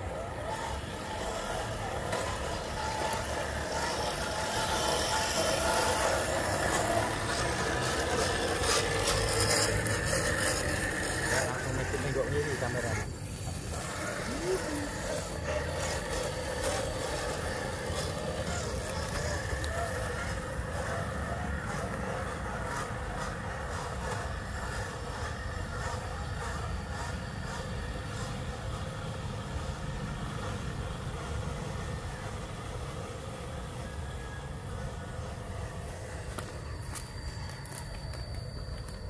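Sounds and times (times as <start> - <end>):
small electric motors whirring: 0.0 - 39.0
dry leaves and twigs crackling: 35.8 - 39.0.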